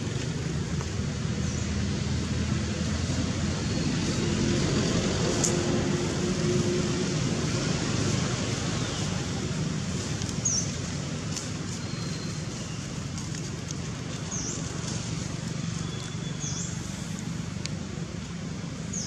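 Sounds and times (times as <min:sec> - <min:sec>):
low outdoor rumble: 0:00.0 - 0:19.0.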